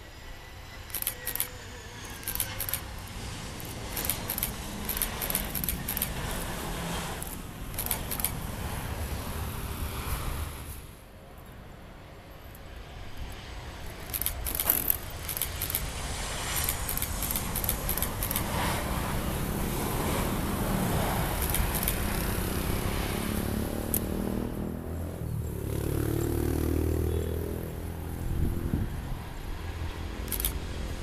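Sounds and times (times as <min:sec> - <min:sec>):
jet engines of landing airliner: 0:00.0 - 0:25.8, 0:27.6 - 0:31.0
cars passing: 0:00.8 - 0:31.0
microphone clicks and rustling: 0:07.2 - 0:08.4.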